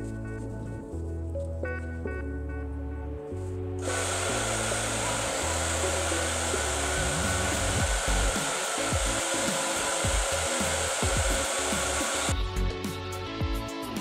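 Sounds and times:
background music with low beat: 0.0 - 14.0
hair dryer whining: 3.8 - 12.4.

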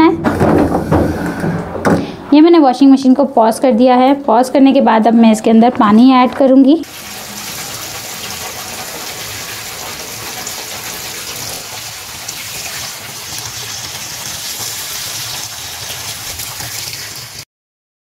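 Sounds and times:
water pouring into washing machine: 6.8 - 17.4
water splashing on laundry: 6.8 - 17.5.

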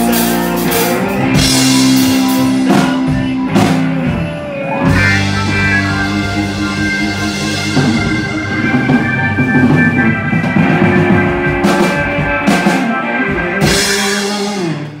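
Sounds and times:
rock band playing: 0.0 - 15.0.

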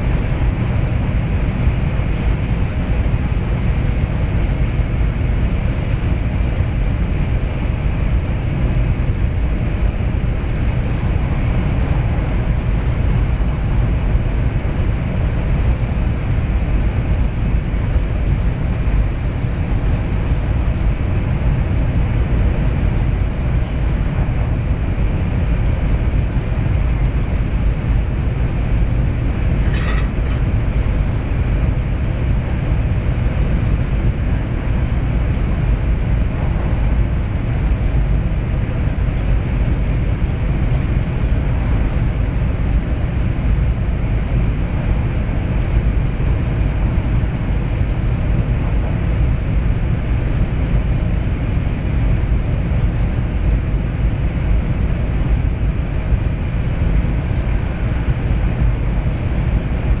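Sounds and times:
wheels rumbling on track: 0.0 - 60.0.

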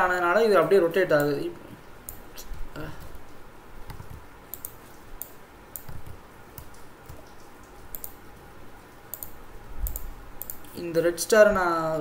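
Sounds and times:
faint background hiss: 0.0 - 12.0
computer mouse clicking: 3.8 - 8.2, 9.1 - 10.7.

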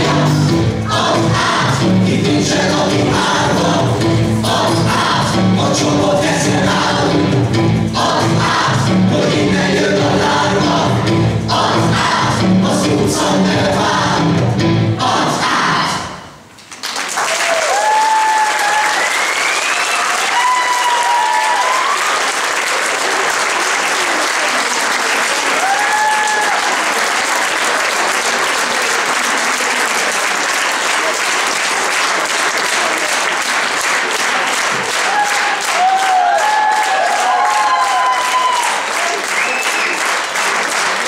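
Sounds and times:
audience clapping: 16.6 - 41.0
high cheering shouts: 17.2 - 23.3, 25.3 - 27.2, 34.8 - 40.2.

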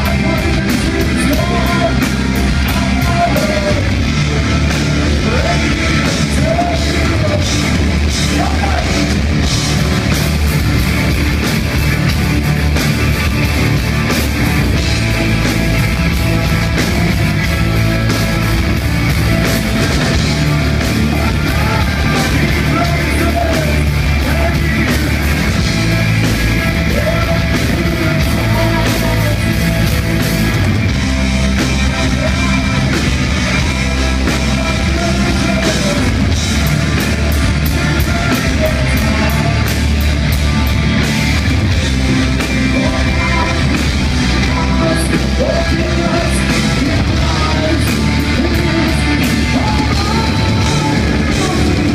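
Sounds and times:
person singing: 0.0 - 4.1, 5.2 - 9.2, 19.9 - 25.8, 26.5 - 30.0, 42.4 - 51.9
distorted electric guitar: 0.0 - 51.9.

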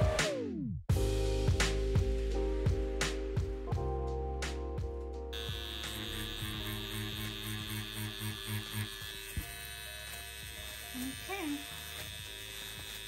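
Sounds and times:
background music with a beat: 0.0 - 5.3
tattoo pen motor whine: 5.3 - 13.0.

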